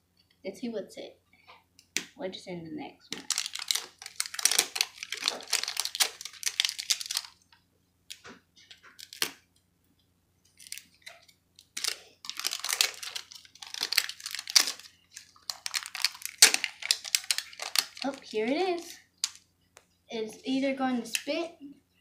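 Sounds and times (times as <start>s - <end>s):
crinkly wrapping being torn: 3.1s - 7.4s, 8.1s - 9.4s, 10.6s - 19.4s.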